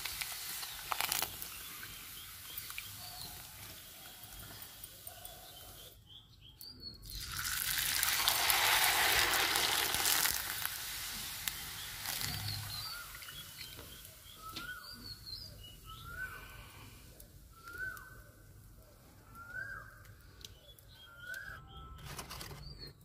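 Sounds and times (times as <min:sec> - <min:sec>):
food sizzling in hot oil: 0:00.0 - 0:05.8, 0:07.0 - 0:16.3
birds chirping: 0:00.6 - 0:07.8, 0:11.1 - 0:23.0.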